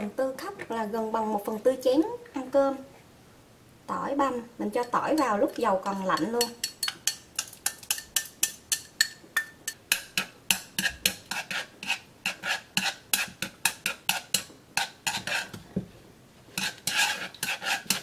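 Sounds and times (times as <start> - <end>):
chopsticks tapping a wok: 4.8 - 11.5, 12.8 - 15.2.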